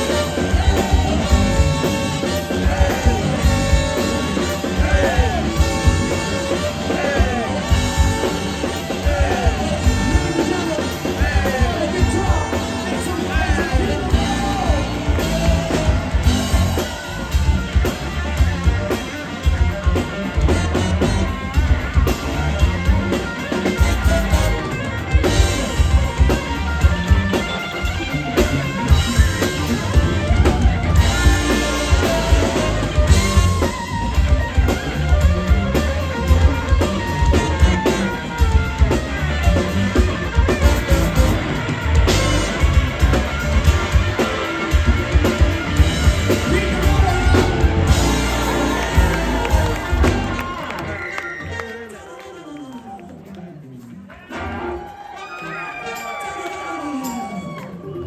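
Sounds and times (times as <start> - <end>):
live funk rock band playing: 0.0 - 51.2.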